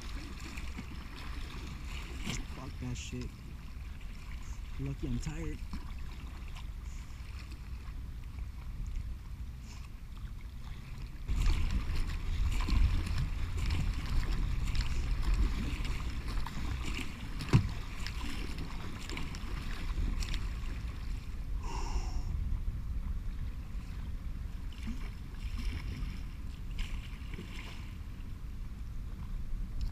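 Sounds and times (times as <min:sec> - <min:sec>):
water splashing around kayak: 0:00.0 - 0:29.9
wind buffeting microphone: 0:11.2 - 0:27.0.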